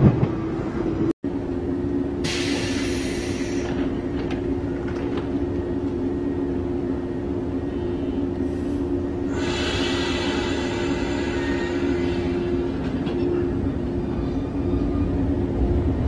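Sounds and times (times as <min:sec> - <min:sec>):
train machinery humming: 0:00.0 - 0:16.0
hiss: 0:02.2 - 0:03.8, 0:09.3 - 0:12.4.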